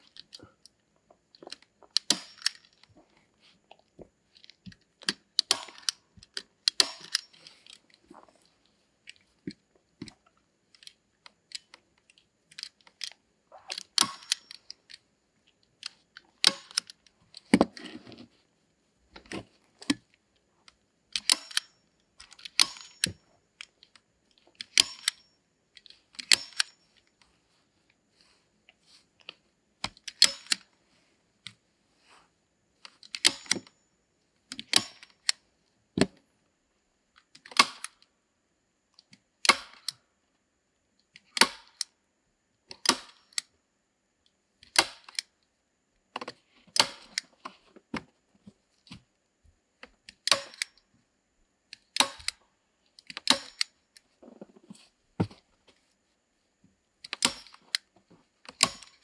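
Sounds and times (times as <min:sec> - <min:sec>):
staple gun snapping: 0:06.7 - 0:07.3, 0:13.7 - 0:14.6, 0:21.2 - 0:21.7, 0:52.0 - 0:52.4, 0:53.1 - 0:53.7, 0:58.6 - 0:59.0.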